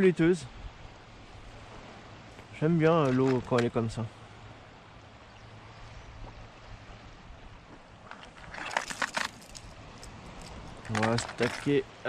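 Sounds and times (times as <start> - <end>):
hiss of wind and water: 0.0 - 12.0
rustles and clicks: 2.8 - 4.0, 8.0 - 11.8.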